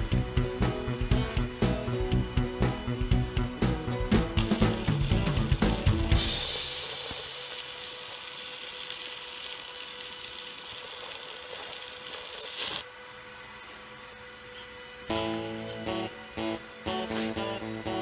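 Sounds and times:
welding arc crackling hiss: 4.2s - 12.9s.

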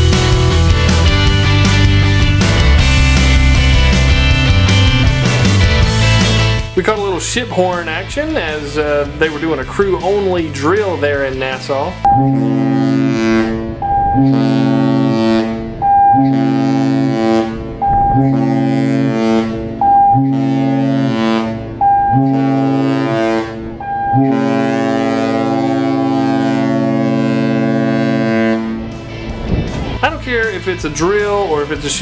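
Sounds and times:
ship's horn blasts: 7.9s - 30.2s.

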